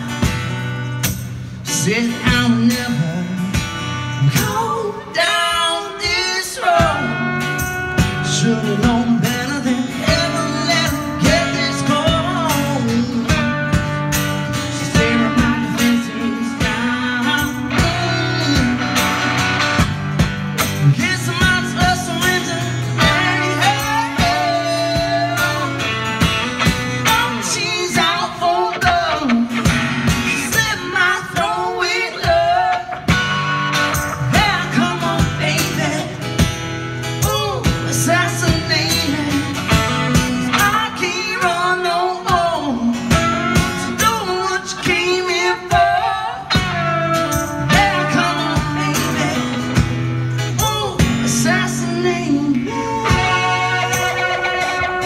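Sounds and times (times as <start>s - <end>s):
electric guitar: 0.0s - 55.0s
strummed acoustic guitar: 0.0s - 55.0s
person singing: 20.8s - 26.0s, 37.2s - 49.8s, 50.6s - 55.0s.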